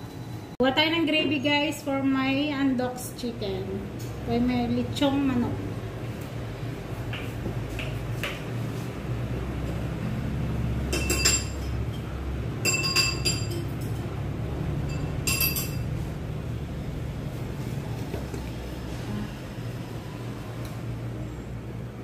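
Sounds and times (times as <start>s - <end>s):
kitchenware clinking: 10.8s - 14.2s, 14.8s - 16.0s.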